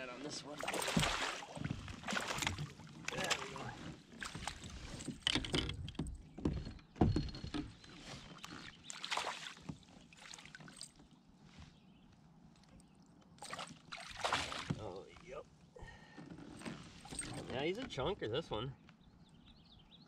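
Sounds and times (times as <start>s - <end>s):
water splashing against kayak hull: 0.4s - 5.4s, 8.1s - 10.8s, 13.4s - 15.2s.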